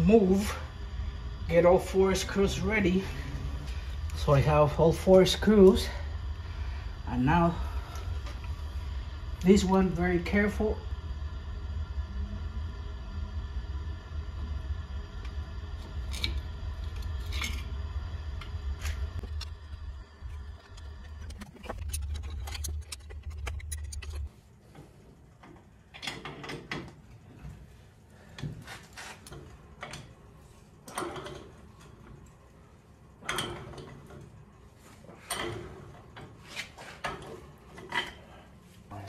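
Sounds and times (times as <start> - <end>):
low steady hum: 0.0 - 39.0.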